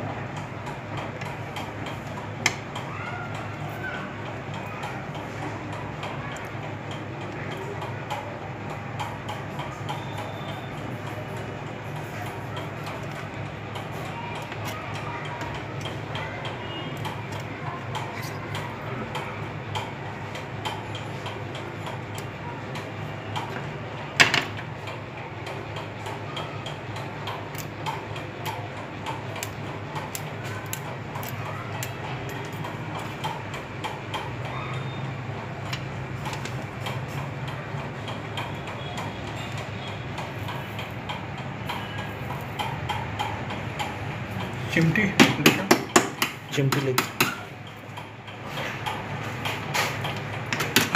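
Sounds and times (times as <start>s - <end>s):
small clicks and taps: 11.4s - 34.3s.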